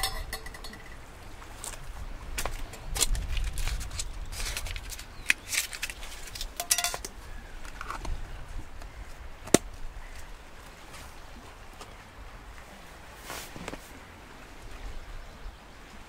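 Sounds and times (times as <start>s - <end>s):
short ringing clink: 0.0s - 0.9s
clicks taps and clatters: 0.0s - 1.0s.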